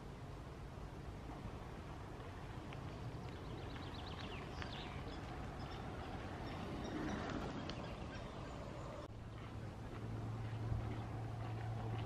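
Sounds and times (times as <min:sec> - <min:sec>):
faint outdoor hiss: 0:00.0 - 0:12.0
wild birds singing: 0:02.4 - 0:12.0.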